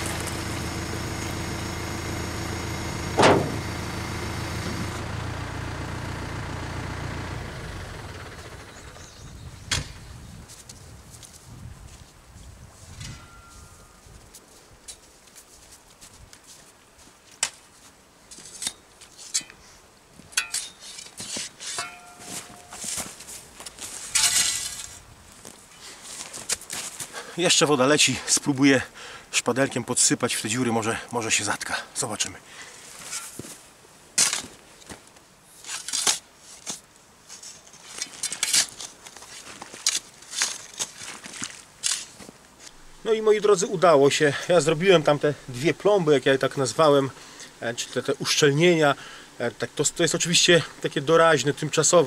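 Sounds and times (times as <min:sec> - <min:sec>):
footsteps crunching on soil: 0:10.4 - 0:19.2, 0:21.2 - 0:27.4, 0:32.8 - 0:33.8, 0:36.4 - 0:45.6
spade knocking and clinking: 0:20.4 - 0:20.8, 0:21.7 - 0:22.8
spade scraping into earth: 0:20.4 - 0:25.0, 0:33.0 - 0:33.4, 0:35.5 - 0:42.2.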